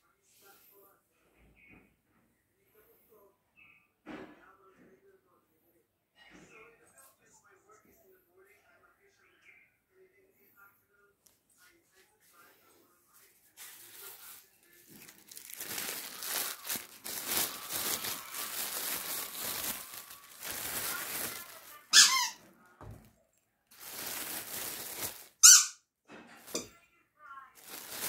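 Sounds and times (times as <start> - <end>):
rustling: 13.2 - 23.1, 23.7 - 25.4, 27.6 - 28.0
squeaky toy squeaking: 21.9 - 22.5, 25.4 - 25.8.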